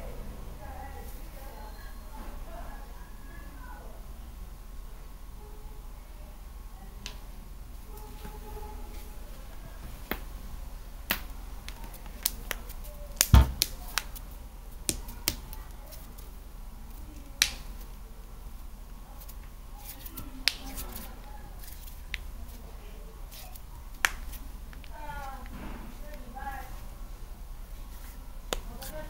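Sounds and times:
heavy knock: 0:13.3 - 0:13.7.

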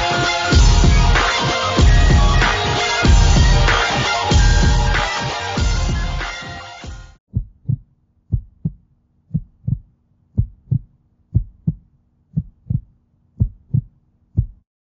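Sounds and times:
heartbeat thumps: 0:07.3 - 0:14.7.

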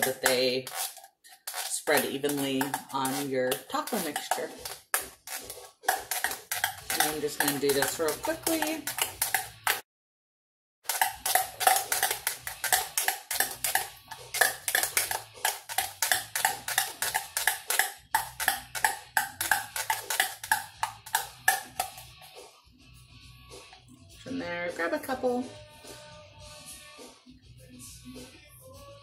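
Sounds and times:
knife chopping in a tin can: 0:00.0 - 0:09.8, 0:10.9 - 0:22.1.

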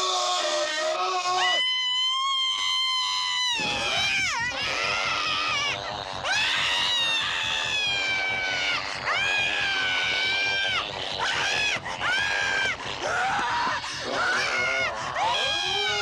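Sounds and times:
woman screaming: 0:01.4 - 0:16.0
rapid animal-like snarling: 0:04.7 - 0:16.0.

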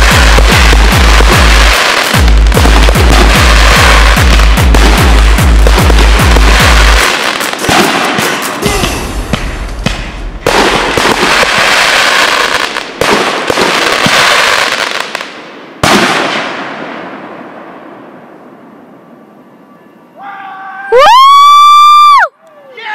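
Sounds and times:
firework crackling and hissing: 0:00.0 - 0:15.3
firework booms: 0:00.0 - 0:17.9.

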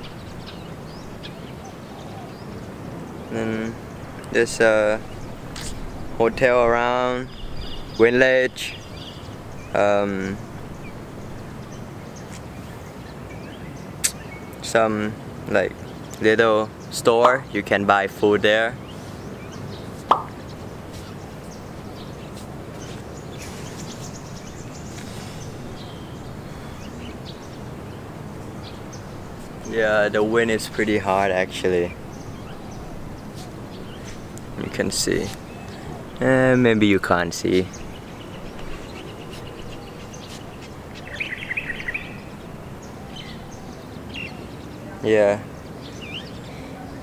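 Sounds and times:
wind rushing over microphone: 0:00.0 - 0:13.3
bird chirping: 0:00.0 - 0:47.0.

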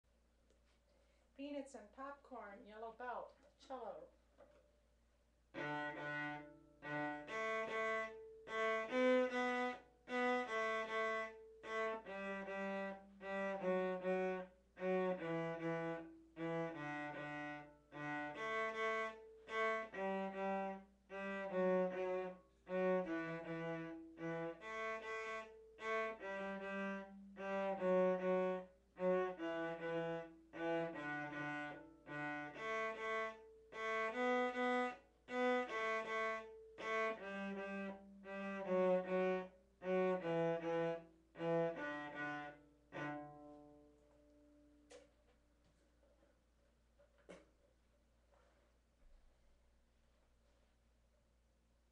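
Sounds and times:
cello bowed notes: 0:05.5 - 0:45.0.

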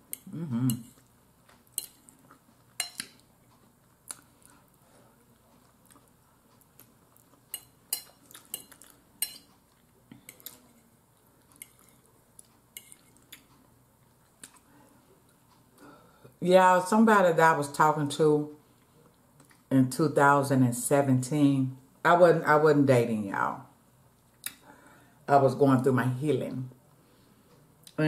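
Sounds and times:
quiet chewing: 0:00.1 - 0:15.8, 0:18.6 - 0:19.7.

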